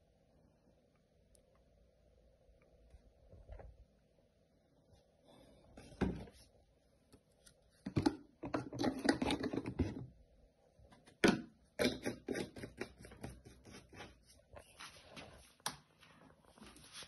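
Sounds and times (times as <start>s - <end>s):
plastic containers clicking and knocking: 7.8s - 10.1s, 11.0s - 13.4s.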